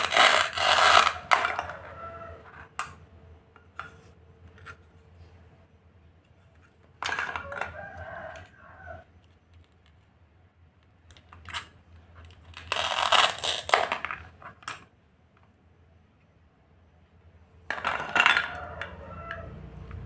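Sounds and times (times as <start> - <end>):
velcro ripping: 0.0 - 1.3, 12.5 - 14.0
plastic toy pieces clattering: 0.0 - 1.9, 7.0 - 7.8, 11.1 - 14.9, 17.7 - 19.4.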